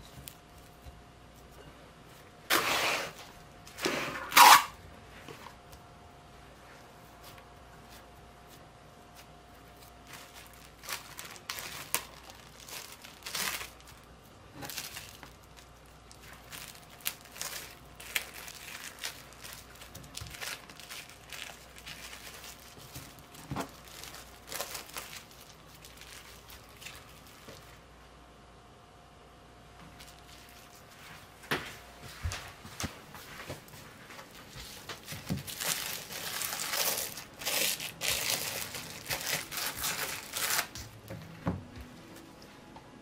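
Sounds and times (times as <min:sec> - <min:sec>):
plastic cling wrap crinkling: 0:08.0 - 0:27.8, 0:29.9 - 0:31.1, 0:33.5 - 0:41.0.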